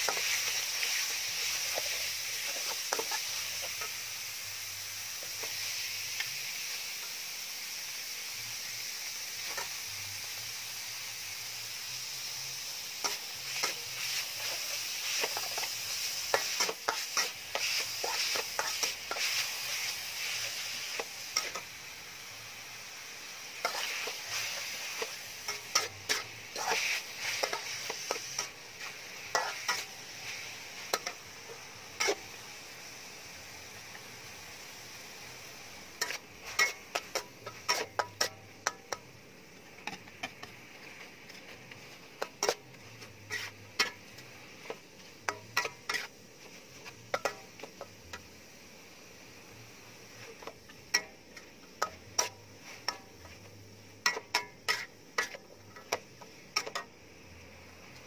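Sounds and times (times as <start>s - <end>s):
metal spatula scraping a wok: 0.0s - 4.1s, 12.9s - 22.0s, 22.8s - 32.4s, 36.0s - 39.1s, 39.8s - 48.3s, 50.1s - 57.0s
meat sizzling in a wok: 0.0s - 58.0s.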